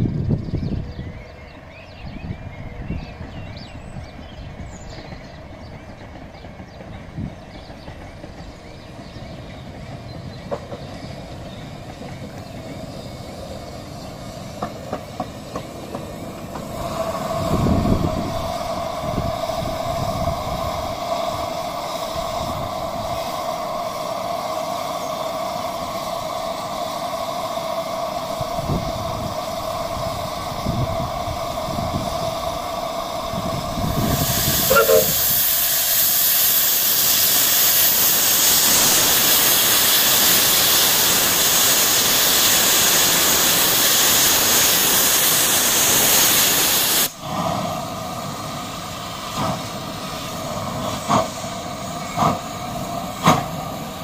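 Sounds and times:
steam train rumbling over crossing: 0.0s - 54.0s
high two-note tone: 34.7s - 35.2s.

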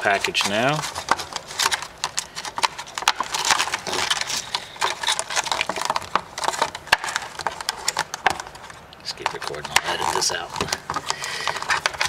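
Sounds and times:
plastic packaging crinkling: 0.0s - 12.0s.

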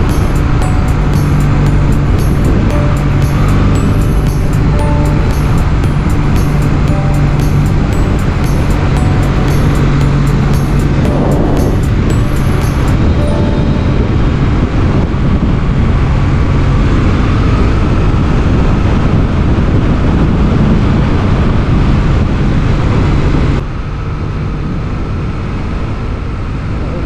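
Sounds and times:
wind rush on microphone: 0.0s - 7.0s, 7.7s - 23.7s
motorcycle engine running: 0.0s - 13.2s.

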